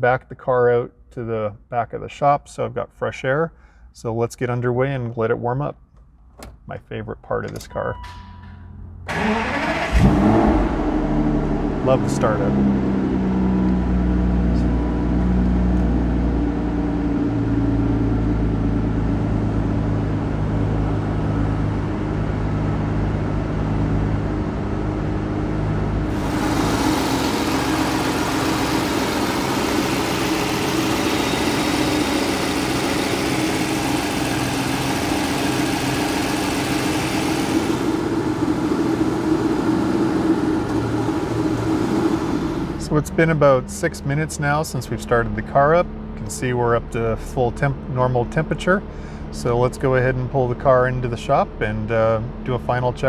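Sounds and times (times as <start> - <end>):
car engine idling: 9.0 - 16.4, 25.6 - 43.6.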